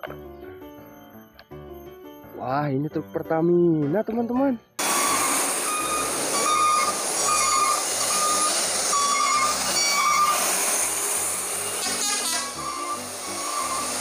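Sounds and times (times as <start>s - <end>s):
motorcycle passing: 4.8s - 14.0s
road traffic noise: 4.8s - 14.0s
truck passing: 4.8s - 14.0s
short high beeping tones: 4.9s - 10.4s, 12.3s - 14.0s.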